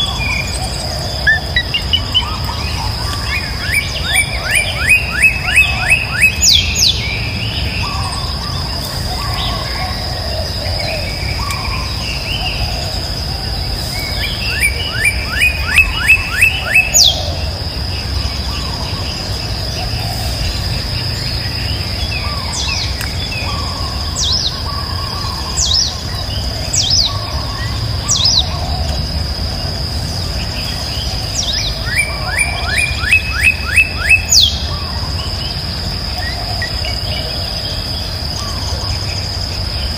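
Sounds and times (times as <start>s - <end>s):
bird chirping: 0.0s - 39.9s
high-pitched insect drone: 0.0s - 39.9s.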